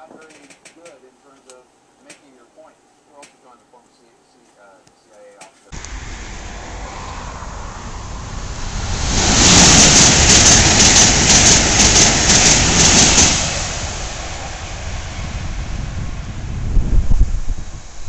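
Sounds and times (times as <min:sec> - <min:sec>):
electric train passing at speed: 0:05.8 - 0:18.0.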